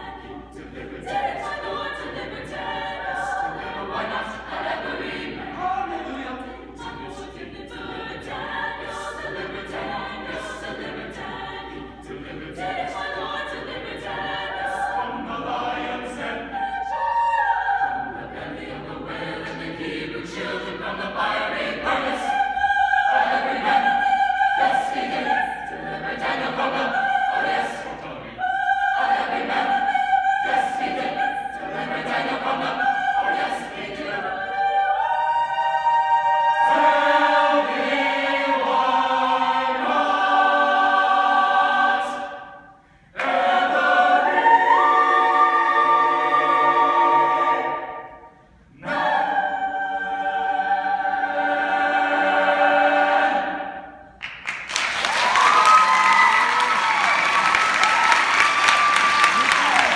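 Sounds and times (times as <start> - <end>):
choir singing in harmony: 0.0 - 59.9
audience applause: 54.2 - 59.9.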